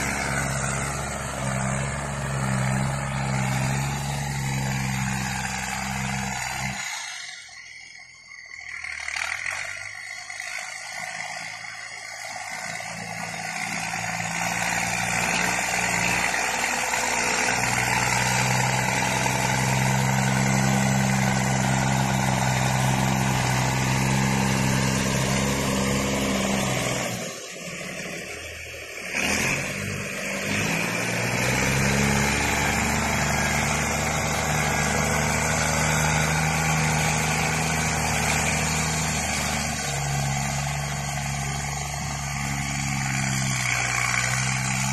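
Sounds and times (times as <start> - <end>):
tractor diesel engine running: 0.0 - 44.9.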